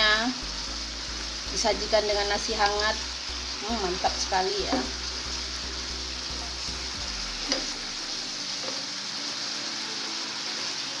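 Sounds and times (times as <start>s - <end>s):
food sizzling in a frying pan: 0.0s - 11.0s.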